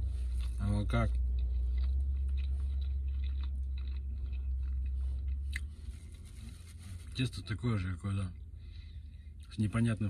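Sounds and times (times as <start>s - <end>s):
man chewing: 0.0s - 6.7s
low car interior drone: 0.0s - 10.0s.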